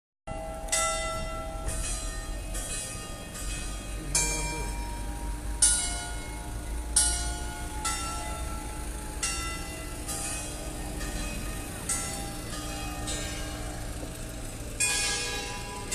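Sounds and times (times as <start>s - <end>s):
church bells ringing: 0.3s - 15.9s.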